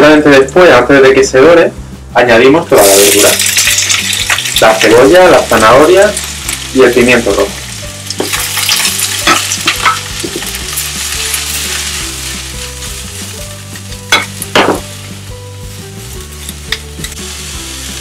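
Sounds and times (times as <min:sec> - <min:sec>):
vegetables sizzling in oil: 0:02.7 - 0:18.0
sharp clatters in a wok: 0:02.9 - 0:04.7, 0:08.1 - 0:14.9.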